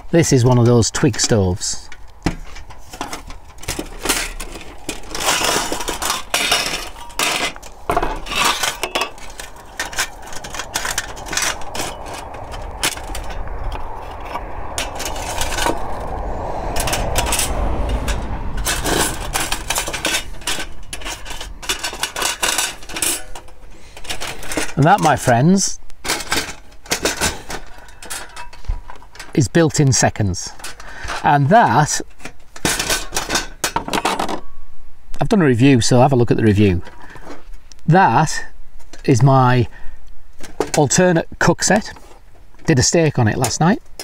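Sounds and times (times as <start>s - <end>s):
wire pot supports clinking: 5.2s - 14.0s
metal stove panels clinking: 14.5s - 24.8s.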